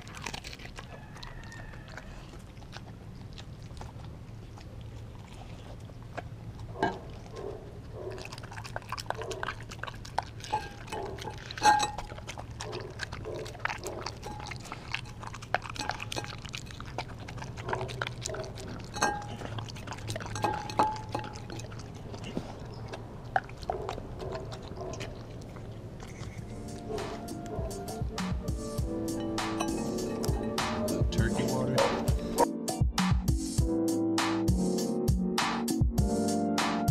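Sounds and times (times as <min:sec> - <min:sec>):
dog licking and chewing meat: 0:00.0 - 0:32.5
teeth clinking against glass dish: 0:08.8 - 0:22.0, 0:29.1 - 0:31.1.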